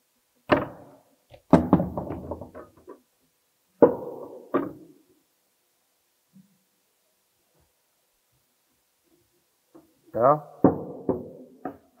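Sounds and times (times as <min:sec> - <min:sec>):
knocks on wooden panel: 0:10.6 - 0:11.8.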